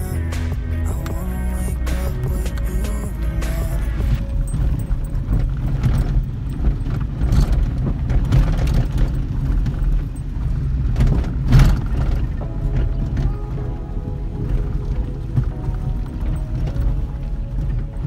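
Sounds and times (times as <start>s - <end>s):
faint background music: 0.0s - 7.7s, 11.5s - 18.0s
car road rumble on dirt road: 0.0s - 18.0s
car knocks over bumps: 4.0s - 18.0s.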